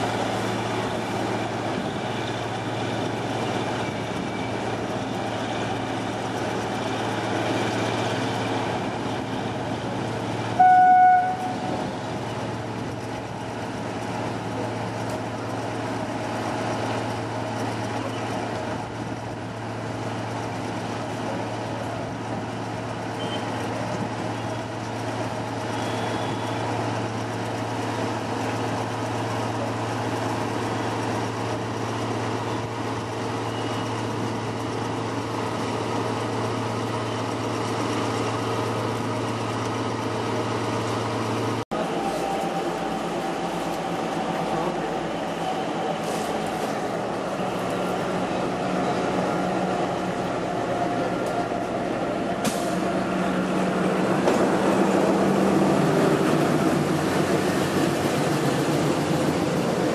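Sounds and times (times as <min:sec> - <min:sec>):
train coaches rolling past: 0:00.0 - 0:59.9
locomotive horn toot: 0:10.6 - 0:11.8, 0:25.7 - 0:26.7
diesel engine running: 0:11.2 - 0:59.9.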